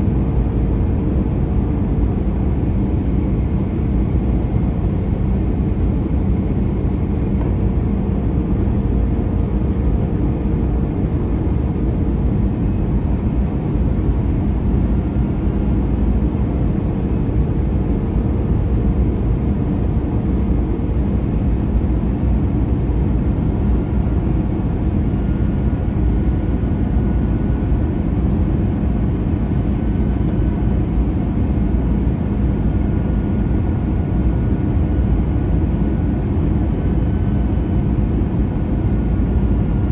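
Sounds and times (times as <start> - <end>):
airliner engine rumble: 0.0 - 39.9.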